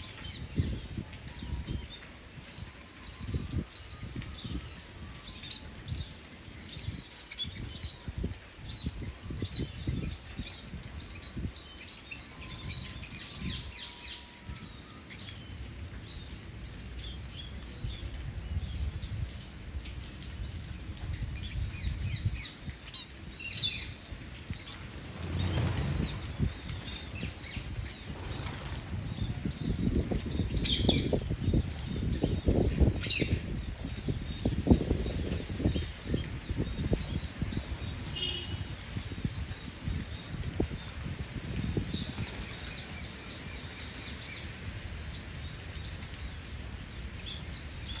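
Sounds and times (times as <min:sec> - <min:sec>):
small birds chirping: 0:00.0 - 0:48.0
low wing fluttering: 0:24.8 - 0:29.5.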